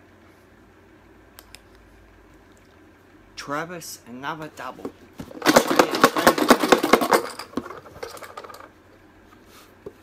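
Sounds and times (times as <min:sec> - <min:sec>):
tickets rattling in shaken box: 0:05.2 - 0:08.7.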